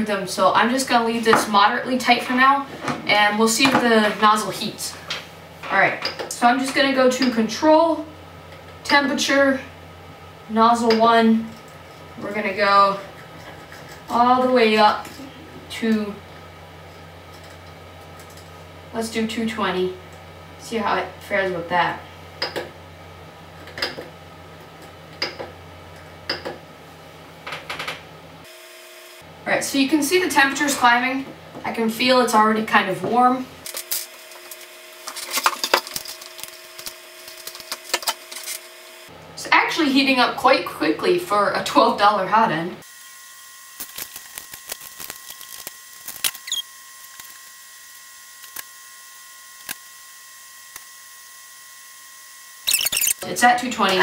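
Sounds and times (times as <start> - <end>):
faint high electronic whine: 42.9 - 53.3.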